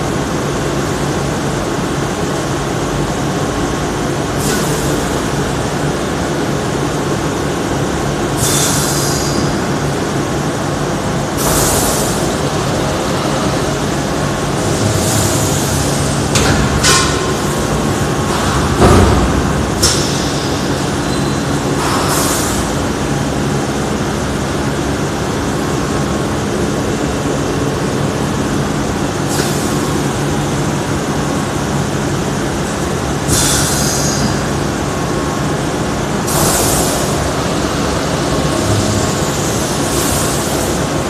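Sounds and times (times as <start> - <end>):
packaging machine humming: 0.0 - 41.0
compressed air hisses: 8.4 - 9.4, 11.4 - 12.3, 21.8 - 22.8, 33.3 - 34.4, 36.3 - 37.2.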